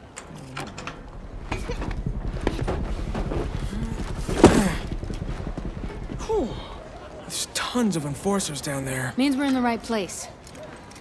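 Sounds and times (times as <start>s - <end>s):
low steady rumble: 0.6s - 8.3s
heavy thud: 0.8s - 7.1s.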